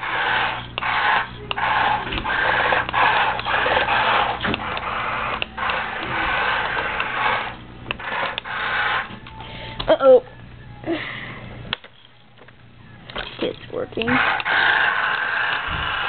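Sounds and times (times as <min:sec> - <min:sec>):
toy tank motors whirring: 0:00.0 - 0:09.2, 0:14.0 - 0:16.0.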